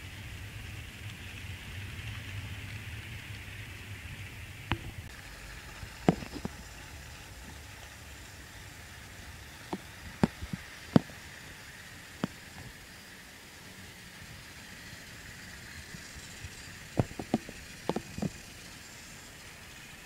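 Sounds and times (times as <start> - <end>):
faint steady hum: 0.0 - 20.0
sharp clicks and knocks: 6.0 - 6.6, 17.0 - 18.4.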